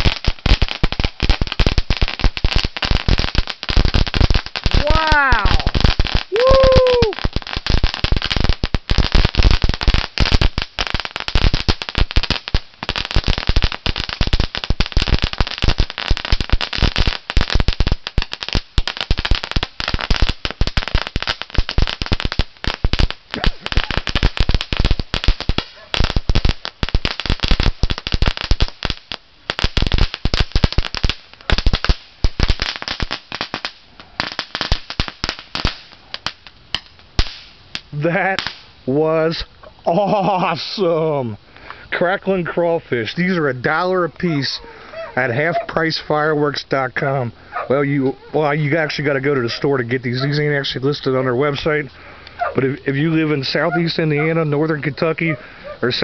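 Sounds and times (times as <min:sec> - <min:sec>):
firework crackling pops: 0:00.0 - 0:39.5
firework hiss: 0:00.0 - 0:39.5.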